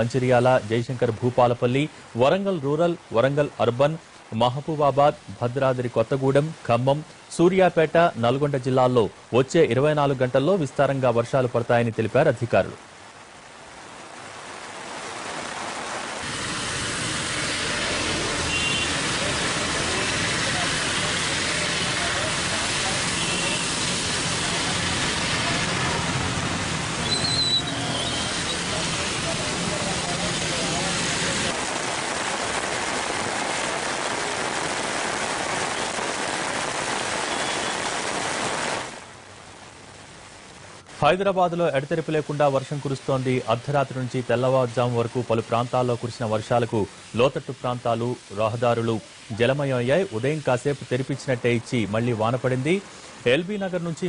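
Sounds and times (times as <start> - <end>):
heavy rain pouring: 0.0 - 54.0
motorbikes on a wet road: 14.8 - 39.0.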